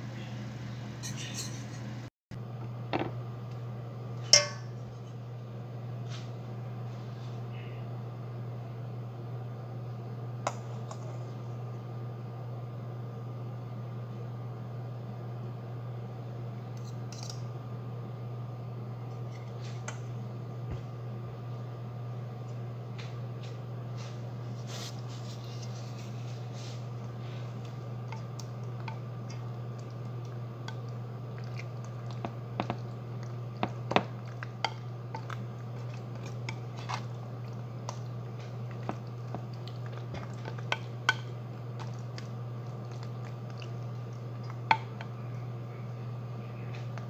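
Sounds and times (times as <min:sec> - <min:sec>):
steady low hum: 0:00.0 - 0:47.0
fork stirring wet pasta: 0:24.9 - 0:45.2.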